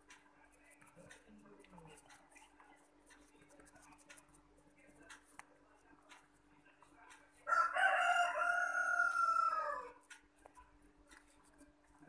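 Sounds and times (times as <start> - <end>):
rooster crowing: 7.5 - 10.0.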